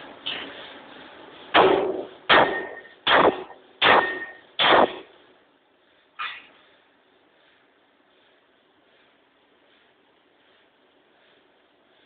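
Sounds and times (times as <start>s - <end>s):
forging hammer blows on metal: 1.6s - 5.1s
metallic ringing: 3.8s - 4.4s.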